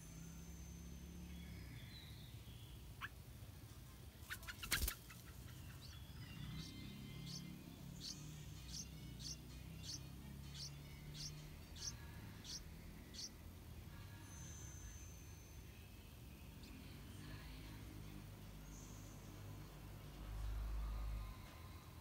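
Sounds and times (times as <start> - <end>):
nestlings begging peeps: 0.4 - 3.3, 4.2 - 13.4.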